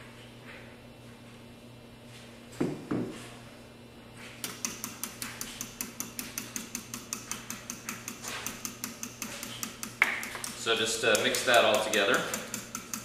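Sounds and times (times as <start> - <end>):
utensil beating in metal bowl: 4.4 - 13.0.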